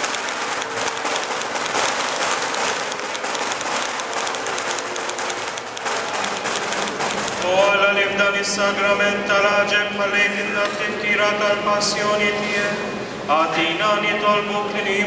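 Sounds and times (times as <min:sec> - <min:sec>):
crowd applauding: 0:00.0 - 0:07.7.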